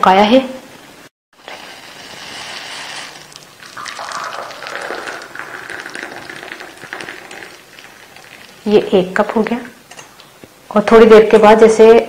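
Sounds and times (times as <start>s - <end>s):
tea trickling into a cup: 1.5s - 8.7s.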